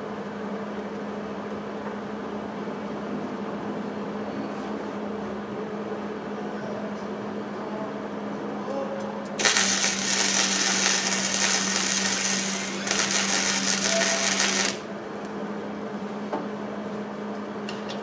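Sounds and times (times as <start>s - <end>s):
steady low hum: 9.2s - 17.7s
welder arc crackling and hissing: 9.4s - 14.9s.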